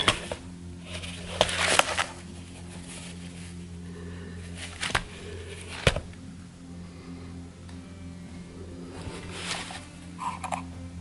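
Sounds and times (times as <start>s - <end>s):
paper booklet rustling: 0.0s - 3.7s, 4.4s - 6.0s, 9.0s - 10.0s
steady low hum: 0.0s - 11.0s.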